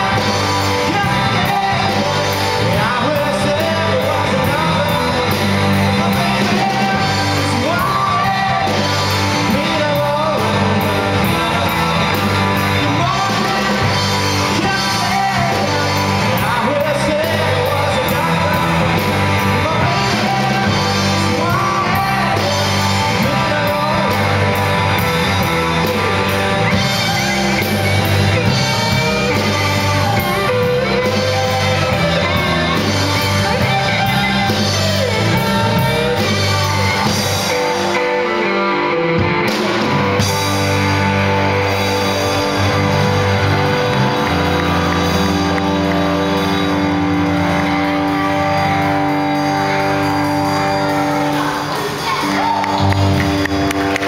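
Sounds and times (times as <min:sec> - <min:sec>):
electric guitars: 0:00.0 - 0:54.0
person singing: 0:00.0 - 0:54.0
rock band playing live: 0:00.0 - 0:54.0.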